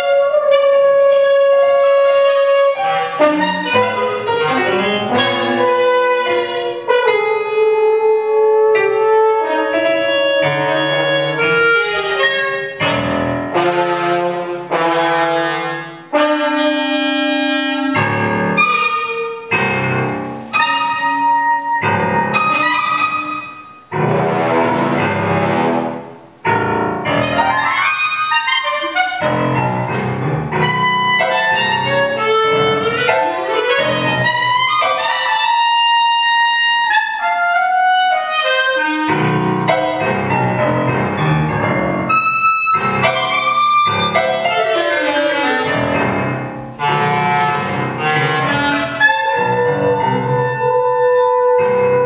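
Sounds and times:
french horn: 0.0s - 19.6s, 22.3s - 26.2s, 43.0s - 52.0s
clarinet: 0.0s - 52.0s
piano: 0.0s - 52.0s.

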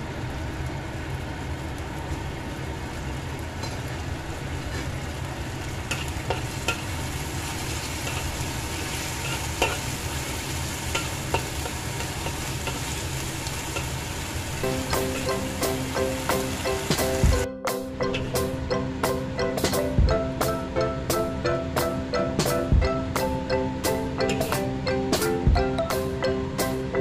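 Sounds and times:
sauce sizzling in wok: 0.0s - 17.5s
metal spatula scraping pan: 7.9s - 9.9s.

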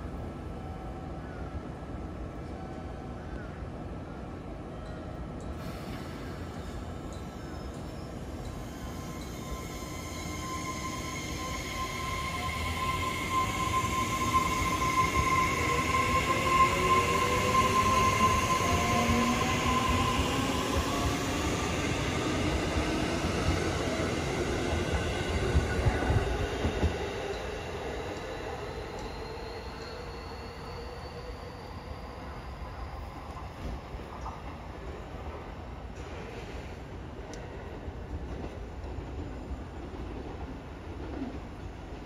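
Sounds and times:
steady high tone: 7.1s - 33.4s.

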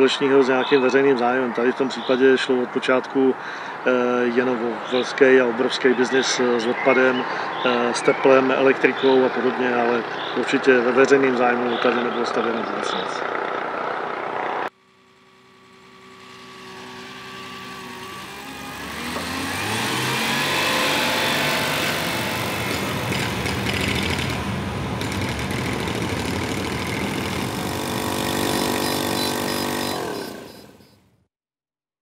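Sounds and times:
mechanical engine-like drone: 8.9s - 31.0s.

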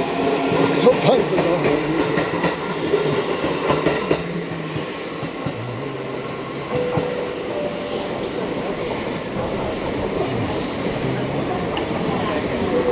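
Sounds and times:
high wheel squeals: 7.4s - 11.0s.

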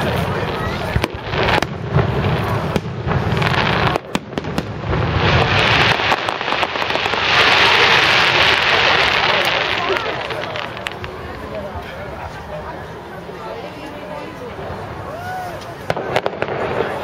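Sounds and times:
firework crackling: 0.0s - 17.0s.

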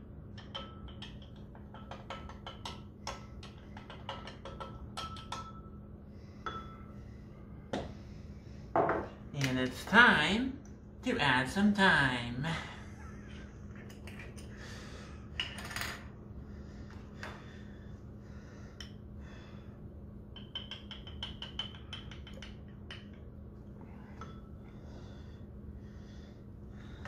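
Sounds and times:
steady low hum: 0.0s - 27.0s
dried herbs tapping onto a spoon: 20.4s - 23.2s.

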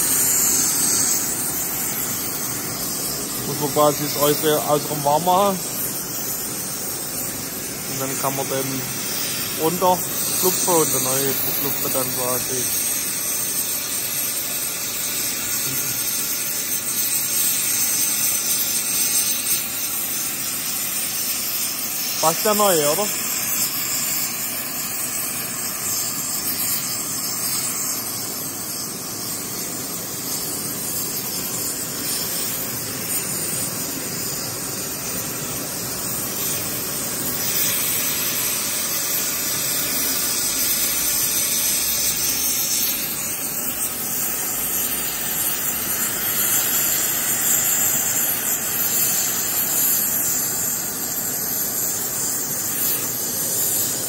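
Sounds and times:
gas torch hissing: 0.0s - 54.0s.

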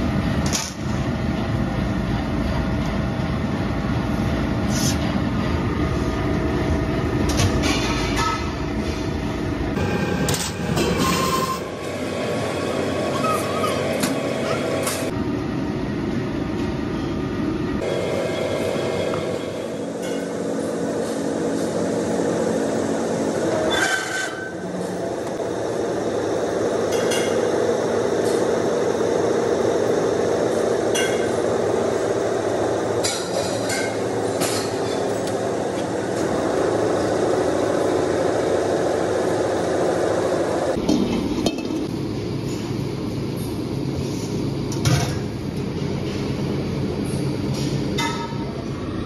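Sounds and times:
hydraulic press drone: 4.9s - 15.1s, 17.8s - 45.4s.

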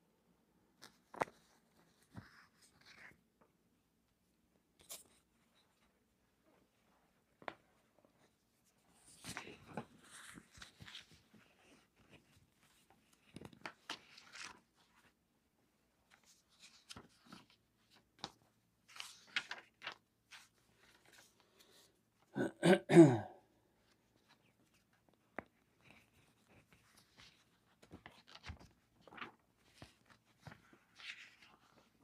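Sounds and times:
pages rustling: 0.8s - 3.3s, 6.6s - 15.2s, 16.0s - 22.0s, 23.8s - 32.0s
man clearing his throat: 22.4s - 23.5s.

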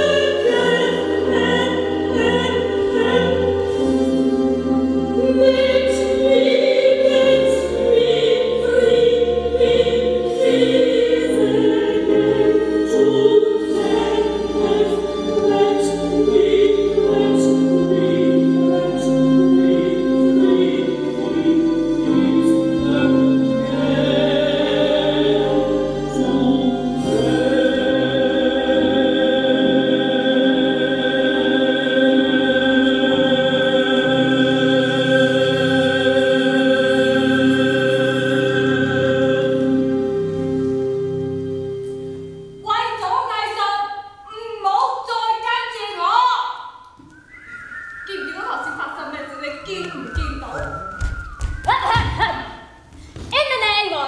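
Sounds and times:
choir singing long notes: 0.0s - 42.4s.

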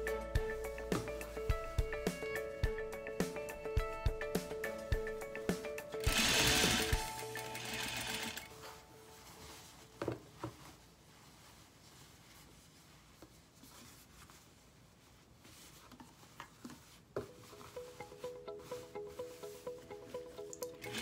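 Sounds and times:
fabric being handled: 0.4s - 2.6s, 7.8s - 21.0s
sewing machine stitching: 6.0s - 8.5s, 20.8s - 21.0s.

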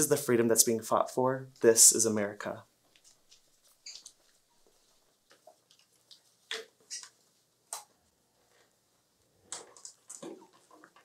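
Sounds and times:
faint clicks and taps: 2.8s - 11.0s.

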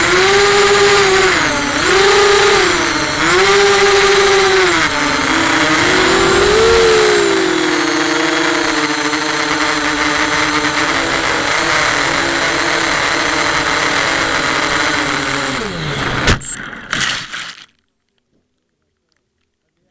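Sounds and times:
racing drone motors whining: 0.0s - 16.4s
drone crashing knocks: 1.6s - 9.7s.

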